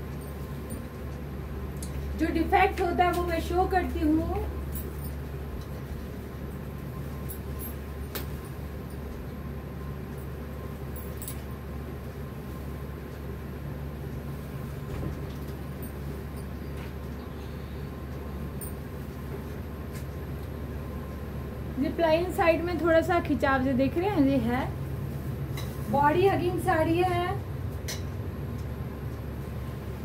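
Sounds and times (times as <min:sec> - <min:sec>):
low room hum: 0:00.0 - 0:30.0.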